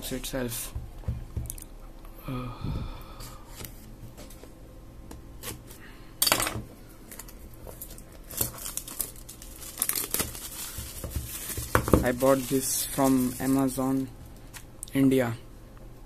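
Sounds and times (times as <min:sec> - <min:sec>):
plastic wrap ripping: 0:07.1 - 0:14.0
plastic film crinkling: 0:07.1 - 0:14.7.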